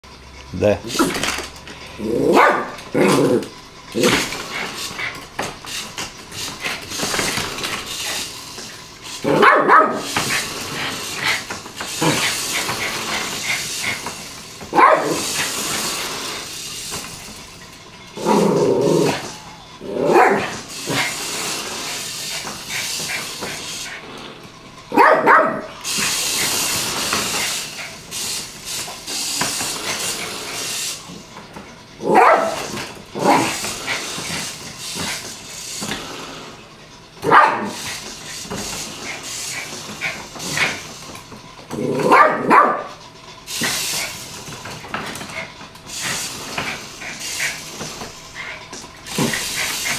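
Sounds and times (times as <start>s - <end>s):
small dog barking: 2.3s - 2.8s, 9.3s - 10.1s, 14.7s - 15.2s, 20.0s - 20.5s, 24.9s - 25.7s, 32.1s - 32.6s, 37.2s - 37.8s, 42.0s - 42.9s
high hissing noise: 25.6s - 31.2s.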